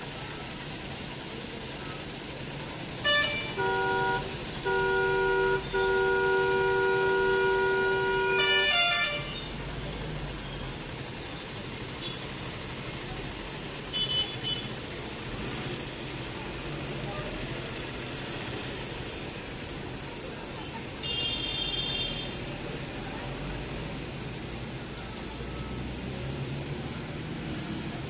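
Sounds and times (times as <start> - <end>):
street noise hum: 0.0 - 28.0
harsh horn: 3.0 - 9.6
vehicle horns honking: 3.0 - 9.6, 13.9 - 14.8, 21.0 - 22.4.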